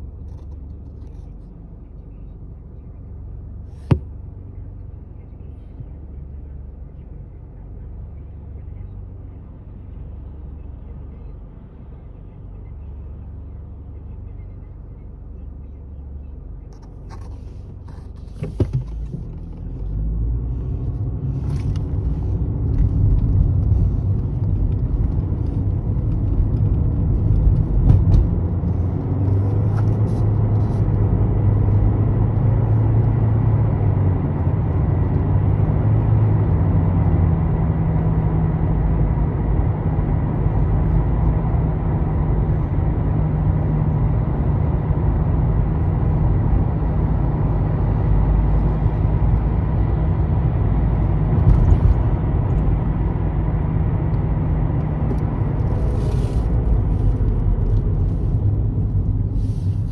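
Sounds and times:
car engine and road rumble: 0.0 - 59.9.

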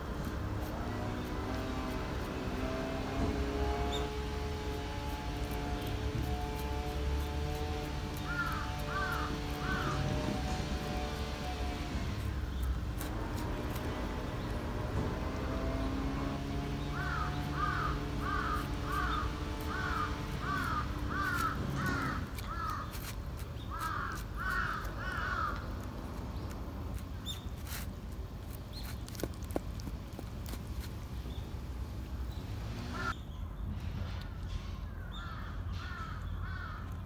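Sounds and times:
bird calling: 8.1 - 11.0, 16.8 - 25.7.

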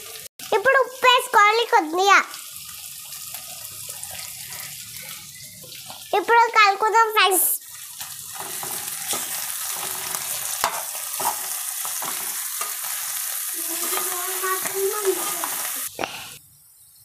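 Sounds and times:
vegetables frying in oil: 0.0 - 16.4
spoon scraping pot: 8.4 - 12.8.

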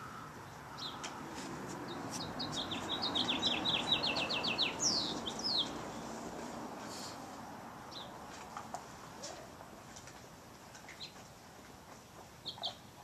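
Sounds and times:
songbird singing trill: 0.0 - 1.2, 1.8 - 6.1, 12.4 - 13.0.

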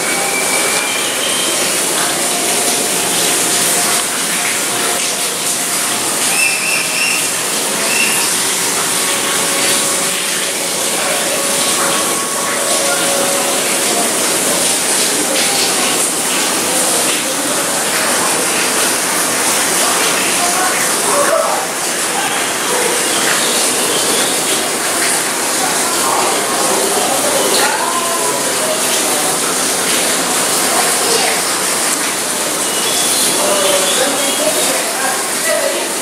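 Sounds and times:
faint voices: 0.0 - 36.0
running water rushing: 0.0 - 36.0.

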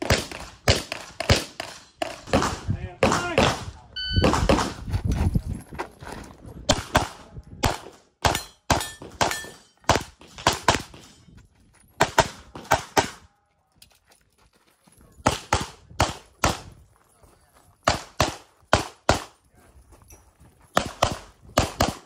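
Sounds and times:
pistol shots: 0.0 - 4.8, 17.8 - 19.4, 20.8 - 22.0.

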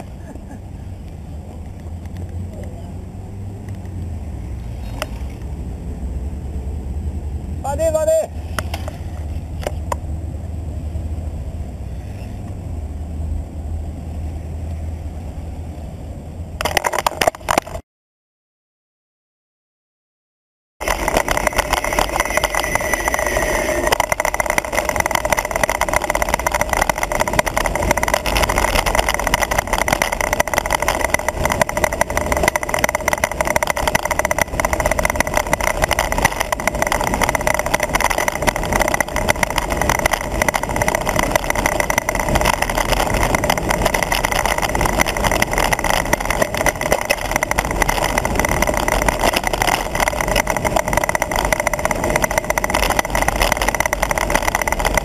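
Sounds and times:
road noise: 0.0 - 17.8, 20.8 - 55.0
steady hum: 20.8 - 55.0
wind rush: 20.8 - 55.0.

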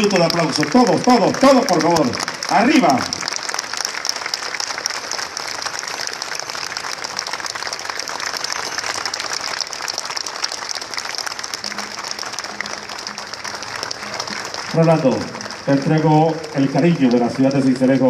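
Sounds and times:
crowd applauding: 0.0 - 18.0.

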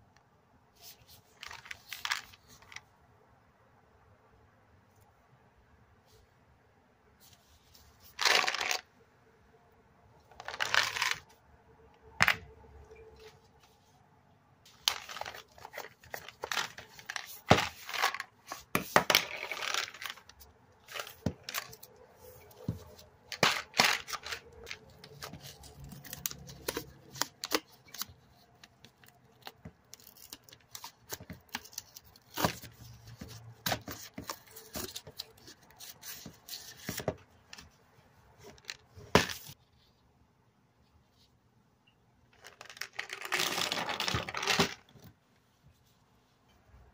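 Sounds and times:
plastic seal tearing and crinkling: 23.3 - 28.2.

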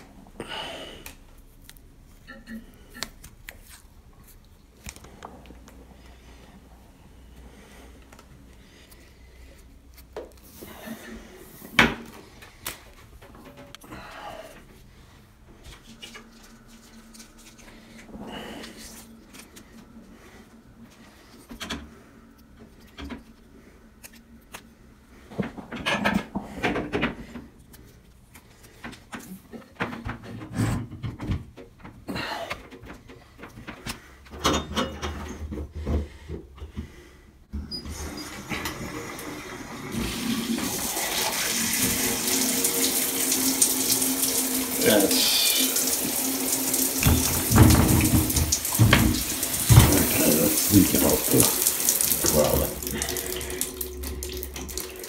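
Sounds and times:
water hissing from shower head: 37.9 - 55.0.

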